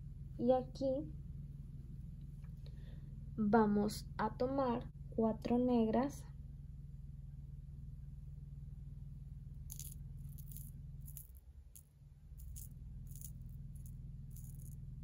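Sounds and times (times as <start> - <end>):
steady low hum: 0.0 - 15.0
glass beads clicking: 9.7 - 14.8.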